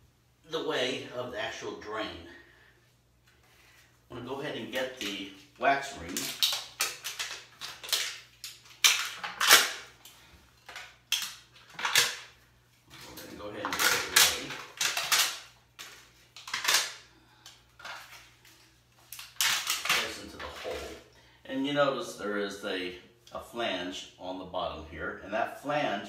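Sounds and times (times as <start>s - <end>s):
plastic packaging crinkling and tearing: 4.6s - 17.1s, 17.8s - 21.0s.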